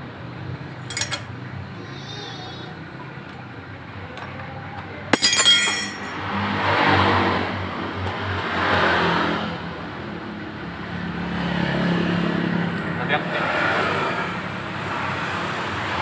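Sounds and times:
motor vehicles passing: 0.0s - 16.0s
metal parts clinking and rattling: 0.8s - 1.3s, 5.1s - 6.2s.

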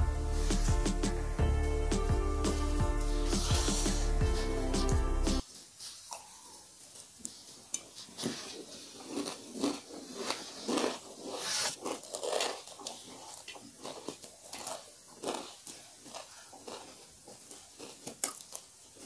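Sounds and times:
crunching and chewing: 6.1s - 19.0s.

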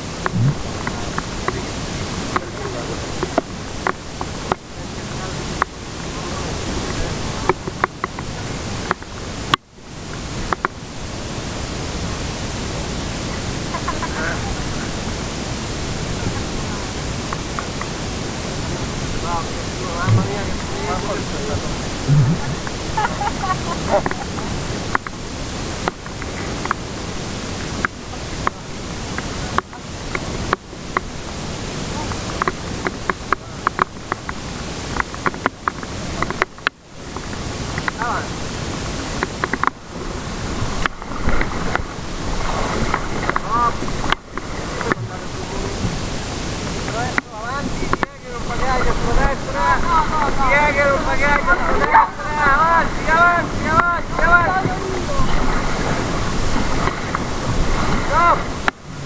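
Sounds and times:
river water rushing: 0.0s - 59.0s
wind on microphone: 0.0s - 59.0s
sharp ticks and knocks: 39.2s - 39.8s.

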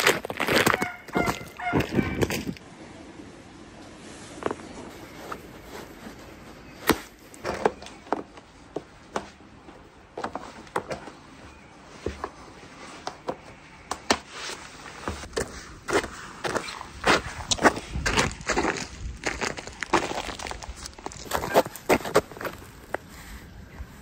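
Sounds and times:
cleated boots stepping on icy concrete: 0.0s - 2.6s, 14.3s - 23.4s.

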